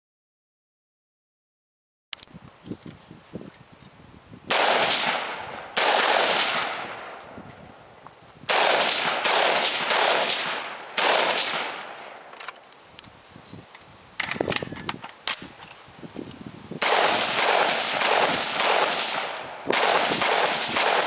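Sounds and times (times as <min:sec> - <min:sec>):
rifle shots with echo: 0:04.5 - 0:07.3, 0:08.5 - 0:12.3, 0:16.8 - 0:21.0.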